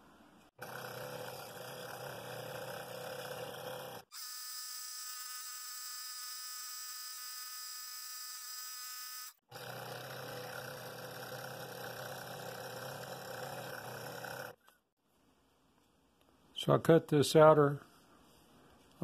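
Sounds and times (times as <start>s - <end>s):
scroll saw cutting wood: 0.6s - 14.6s.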